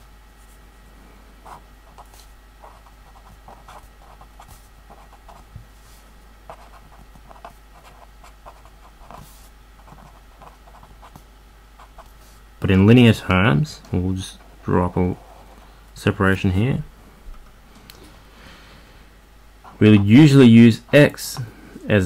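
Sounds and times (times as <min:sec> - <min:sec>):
pen scratching on paper: 0:01.5 - 0:05.4, 0:06.5 - 0:11.2.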